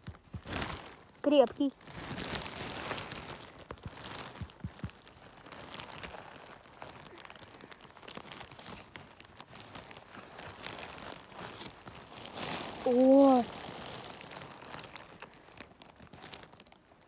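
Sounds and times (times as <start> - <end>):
small clicks and snaps: 0.0 - 0.6
rustling of forest floor litter: 0.0 - 17.0.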